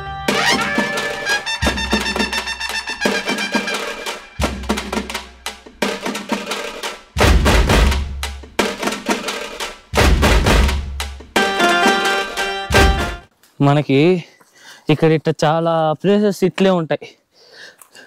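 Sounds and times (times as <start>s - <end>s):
music with driving drum beat: 0.3s - 13.3s
heavy bass drum: 1.6s - 2.5s, 7.2s - 9.0s, 9.9s - 11.4s.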